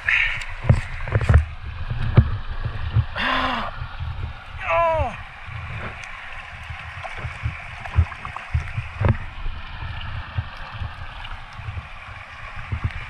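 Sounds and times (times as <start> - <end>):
stream running over rocks: 0.0 - 13.0.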